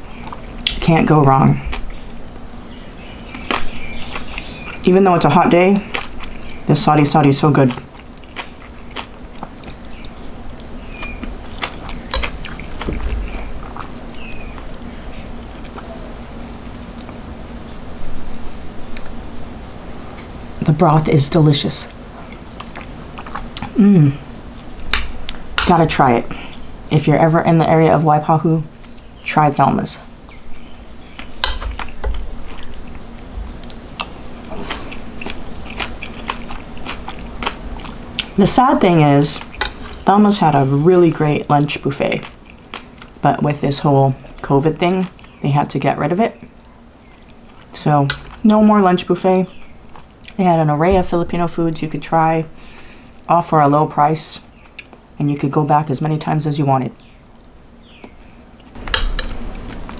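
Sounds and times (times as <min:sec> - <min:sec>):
person chewing: 0:01.6 - 0:04.9, 0:05.8 - 0:06.6, 0:07.5 - 0:15.9, 0:21.9 - 0:25.5, 0:28.8 - 0:29.1, 0:31.0 - 0:43.2, 0:46.4 - 0:48.4, 0:49.6 - 0:50.4, 0:54.5 - 0:55.0, 0:58.0 - 0:59.9.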